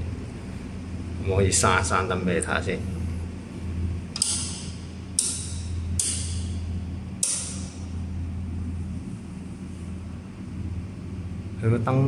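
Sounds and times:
steady low hum: 0:00.0 - 0:12.0
light switches clicking: 0:04.1 - 0:06.6, 0:07.2 - 0:07.8.

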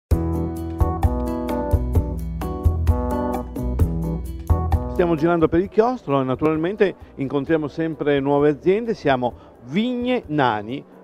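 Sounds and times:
instrumental music with steady beat: 0:00.1 - 0:05.8.

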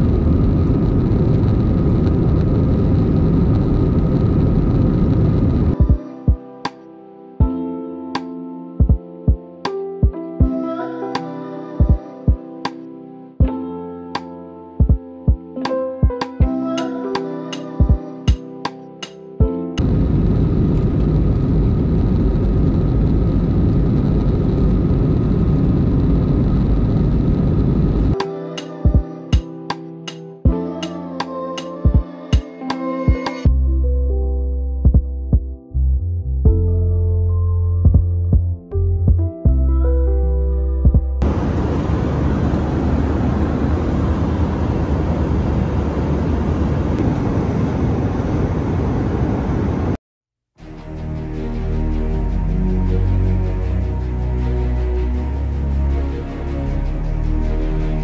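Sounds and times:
airplane cabin rumble: 0:00.0 - 0:05.9, 0:19.8 - 0:28.2, 0:41.2 - 0:50.0
faint steady whine: 0:19.8 - 0:28.2, 0:41.2 - 0:50.0.

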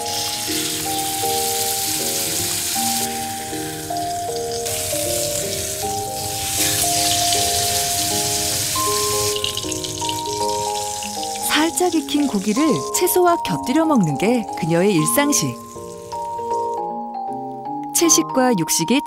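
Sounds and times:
beef sizzling in a pan: 0:00.0 - 0:13.3, 0:15.0 - 0:16.7
background music with held notes: 0:00.0 - 0:19.0.

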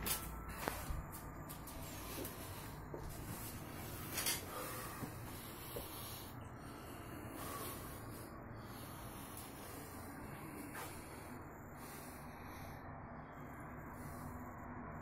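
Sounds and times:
low background noise: 0:00.0 - 0:15.0.

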